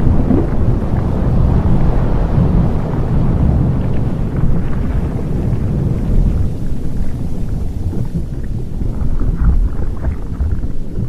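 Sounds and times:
faint crackles: 0.0s - 11.0s
volcanic eruption roaring: 0.0s - 11.0s.

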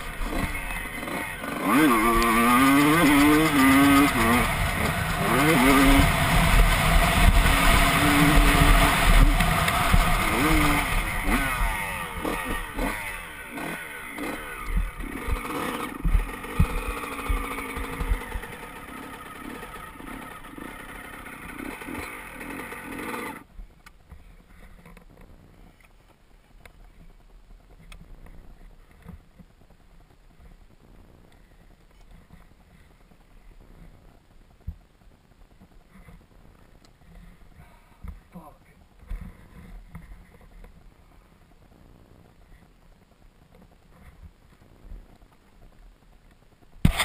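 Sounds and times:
dirt bike engine revving: 0.0s - 23.5s
faint clicks and rustling: 23.4s - 46.9s.

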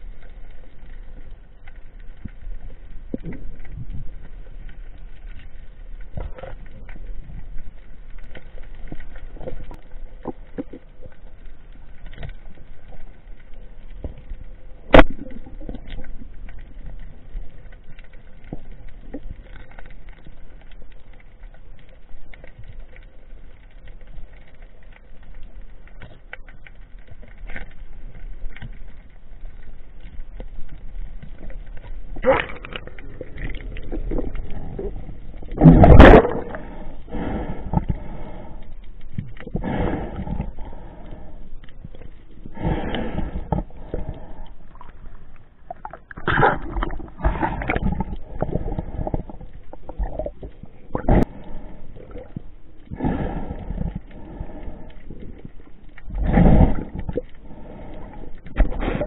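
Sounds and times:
low underwater rumble: 0.0s - 59.0s
small clicks and crackles: 0.0s - 59.0s.

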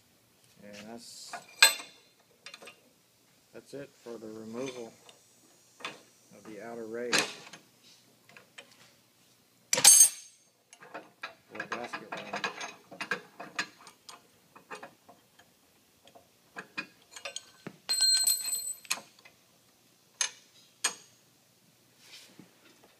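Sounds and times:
metal clicks and clatter: 16.1s - 19.3s
ringing metallic clang: 17.9s - 18.8s.

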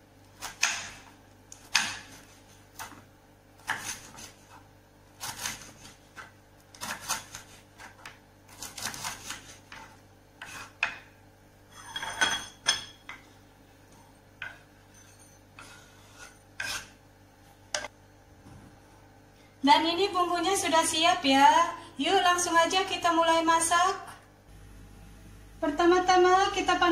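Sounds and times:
knife cutting on wooden board: 3.6s - 4.6s, 5.2s - 11.0s, 15.6s - 17.0s
knife scrape with ringing: 11.7s - 12.6s, 14.9s - 16.9s.

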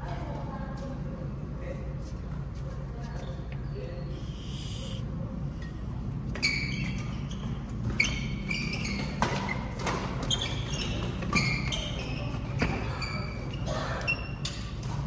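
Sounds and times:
low hum in large hall: 0.0s - 15.0s
sneakers squeaking on court floor: 6.3s - 15.0s.

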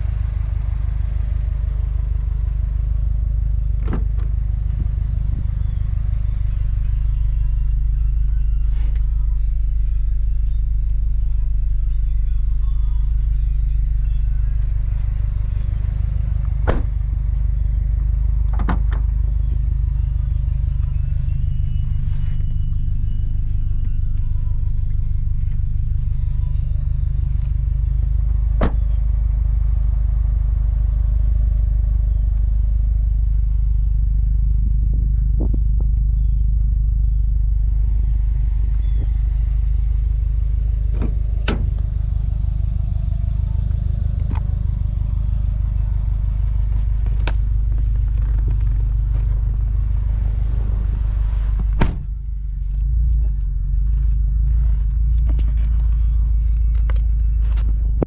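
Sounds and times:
car engine idling: 0.0s - 58.0s
thump: 16.7s - 17.0s, 28.6s - 28.9s, 51.6s - 52.1s.

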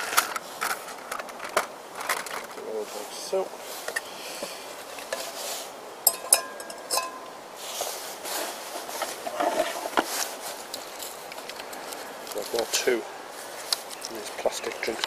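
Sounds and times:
metal pot clinking on stove: 6.0s - 7.3s.

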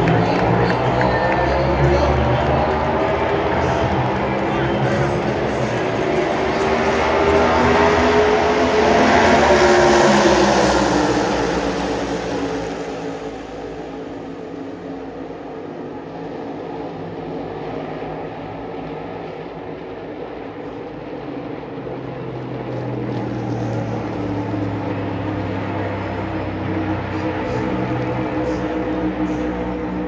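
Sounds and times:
race car engines droning: 0.0s - 30.0s.

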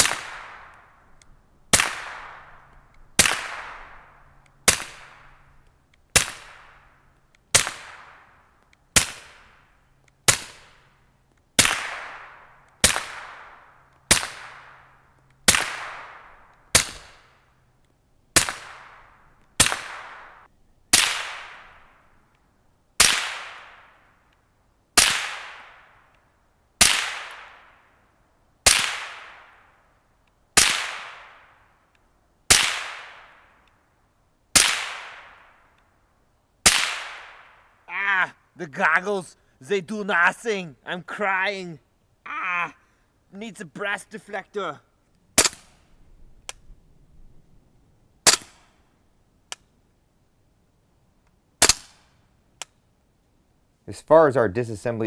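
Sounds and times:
suppressed gunshots: 0.0s - 5.4s, 6.1s - 6.9s, 7.5s - 8.3s, 8.9s - 9.5s, 10.2s - 10.8s, 11.6s - 17.4s, 18.3s - 22.0s, 23.0s - 24.0s, 25.0s - 26.0s, 26.8s - 27.8s, 28.6s - 29.6s, 30.6s - 31.5s, 32.5s - 33.5s, 34.5s - 35.6s, 36.6s - 37.6s, 45.4s - 45.9s, 48.2s - 48.8s, 51.6s - 52.1s.

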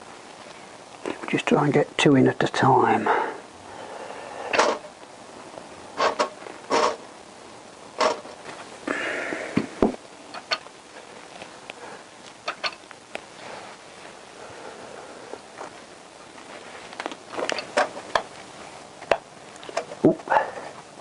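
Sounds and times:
metal scraping: 6.0s - 7.0s.

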